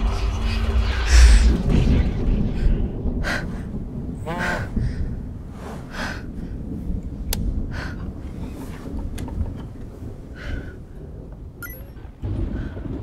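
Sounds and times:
low rumble: 0.0s - 13.0s
person breathing: 2.6s - 7.0s.

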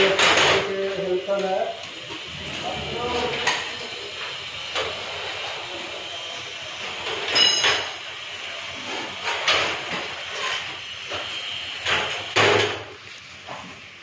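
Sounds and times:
steady hum: 0.0s - 8.9s
ringing metallic clank: 7.3s - 7.9s.

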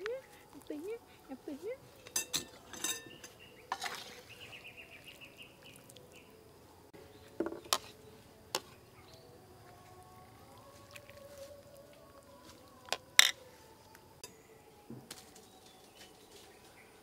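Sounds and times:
metal ladle clinking: 2.0s - 4.2s.

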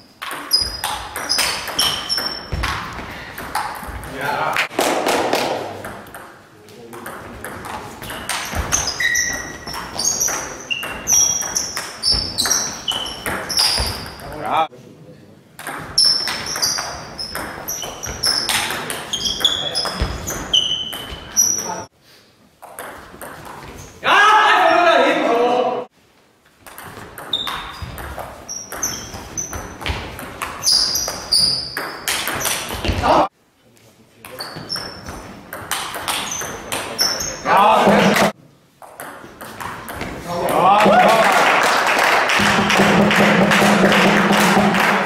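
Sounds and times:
shoes squeaking on floor: 0.0s - 4.2s, 7.3s - 14.4s, 15.8s - 21.9s, 23.0s - 24.0s, 26.8s - 33.3s, 34.3s - 38.4s.

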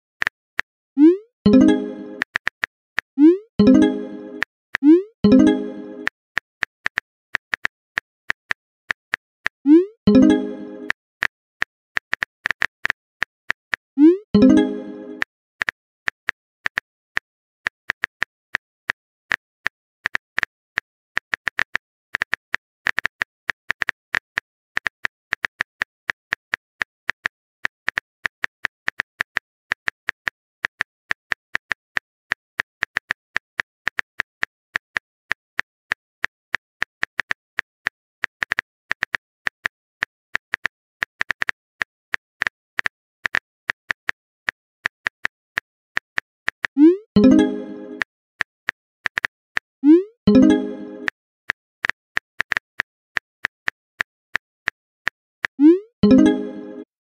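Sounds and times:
keyboard typing clicks: 1.0s - 2.6s, 3.2s - 6.1s, 9.7s - 11.0s, 14.0s - 15.7s, 46.6s - 48.1s, 49.1s - 51.2s, 55.5s - 56.9s.

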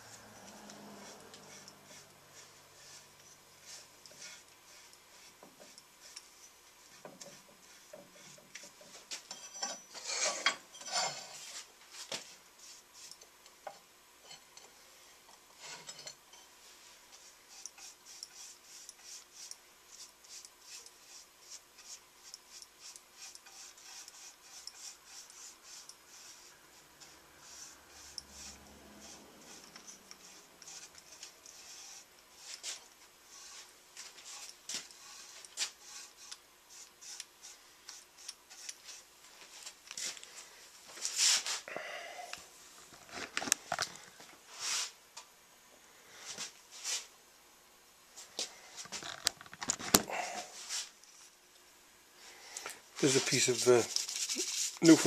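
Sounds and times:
hand rubbing over wood: 53.0s - 55.0s.

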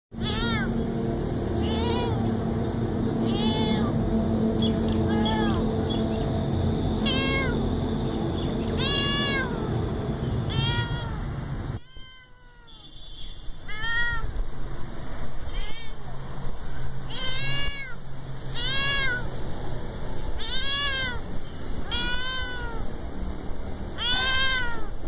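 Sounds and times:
young cat meowing: 0.2s - 0.8s, 1.6s - 2.2s, 3.3s - 3.9s, 5.1s - 5.6s, 7.0s - 7.6s, 8.7s - 9.7s, 10.5s - 12.9s, 13.6s - 14.3s, 15.5s - 16.0s, 17.1s - 19.3s, 20.4s - 21.2s, 21.8s - 22.9s, 24.0s - 25.0s.

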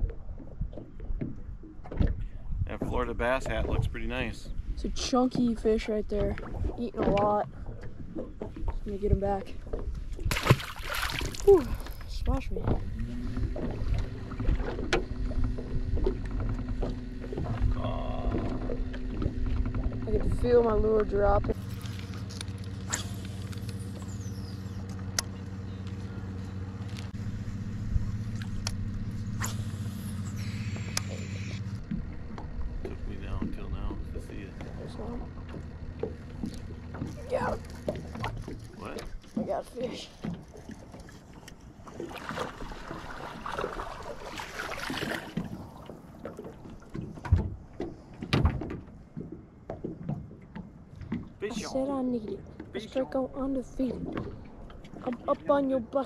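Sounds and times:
water lapping at boat side: 0.0s - 56.0s
electric trolling motor humming: 11.4s - 47.7s.

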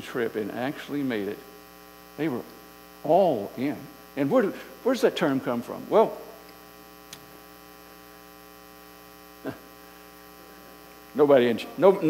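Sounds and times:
man speaking: 0.0s - 1.4s, 2.2s - 6.4s, 11.1s - 12.0s
electrical mains hum: 0.0s - 12.0s.

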